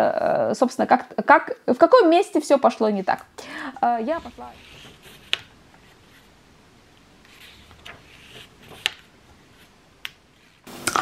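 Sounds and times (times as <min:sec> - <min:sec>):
paper rustling: 0:04.0 - 0:06.4, 0:07.2 - 0:10.7.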